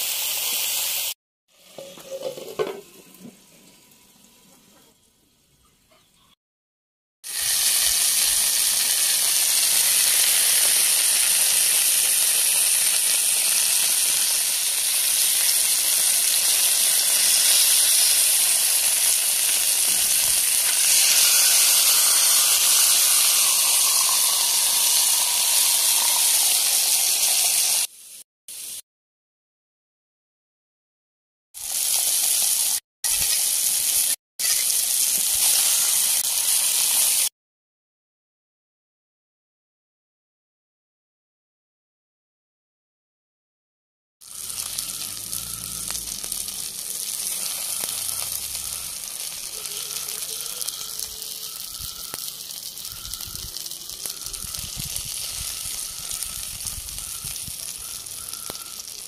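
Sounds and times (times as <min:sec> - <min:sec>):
chicken sizzling in hot oil: 0:00.0 - 0:04.9, 0:07.2 - 0:28.8, 0:31.6 - 0:37.3, 0:44.2 - 0:59.0.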